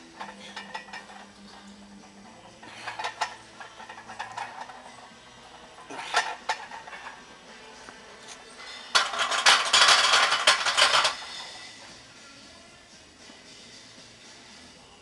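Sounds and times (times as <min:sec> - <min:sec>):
barbell plates clinking: 0:02.4 - 0:05.1, 0:08.9 - 0:11.3
metal rattling on metal: 0:08.9 - 0:11.2.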